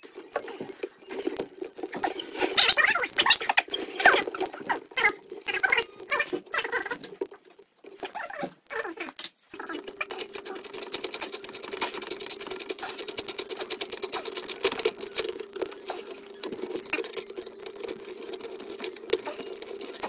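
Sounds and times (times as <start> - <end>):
power driver motor clicking: 9.6 - 20.0.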